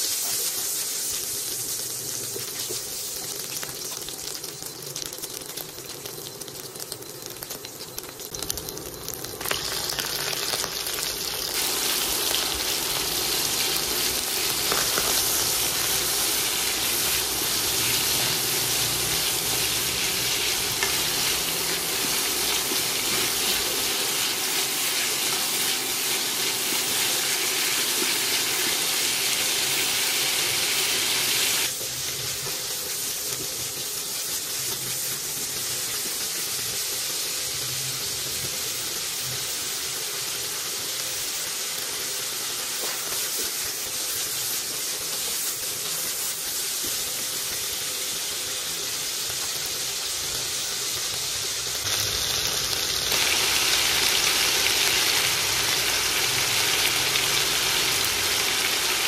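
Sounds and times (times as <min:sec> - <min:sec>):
meat sizzling in hot oil: 0:00.0 - 0:59.0.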